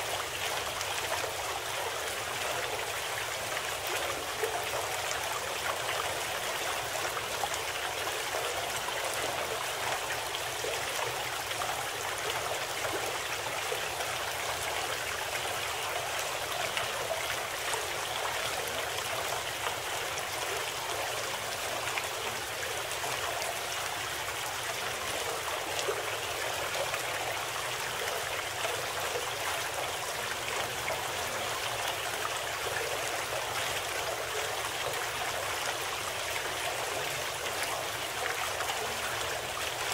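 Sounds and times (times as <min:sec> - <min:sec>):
flowing stream water: 0:00.0 - 0:39.9.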